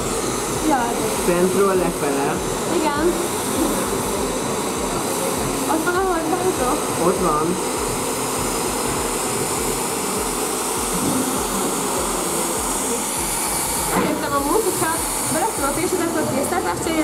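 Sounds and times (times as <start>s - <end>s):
hair dryer blowing: 0.0s - 17.0s
voices: 14.0s - 17.0s.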